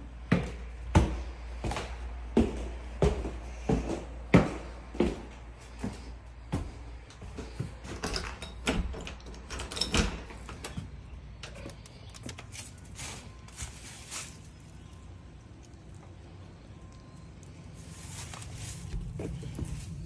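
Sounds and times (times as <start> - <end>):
footsteps: 0.3 - 8.0, 17.8 - 20.0.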